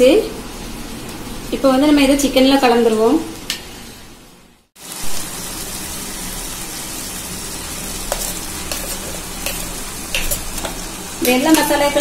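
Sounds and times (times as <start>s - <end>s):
chicken sizzling in oil: 4.8s - 12.0s.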